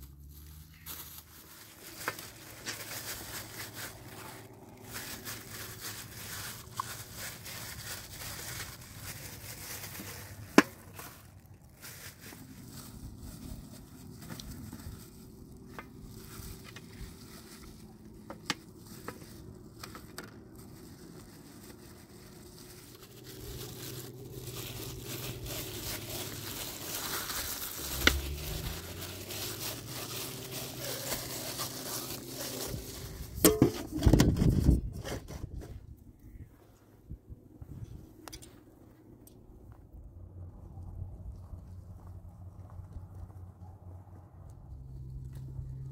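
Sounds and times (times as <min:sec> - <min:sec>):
plastic gloves crinkling: 0:00.0 - 0:36.4.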